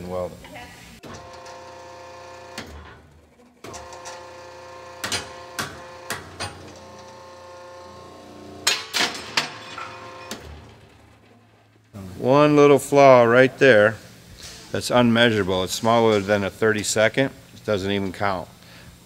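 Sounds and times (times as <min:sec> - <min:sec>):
hydraulic press humming: 0:01.0 - 0:13.3.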